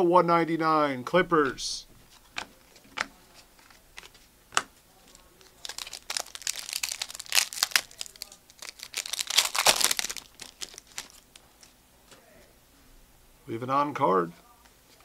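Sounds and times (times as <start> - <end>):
plastic wrapper crinkling: 2.2 - 11.8.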